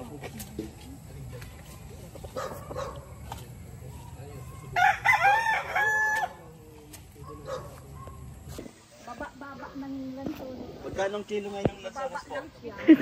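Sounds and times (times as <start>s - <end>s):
rooster crowing: 4.7s - 6.4s.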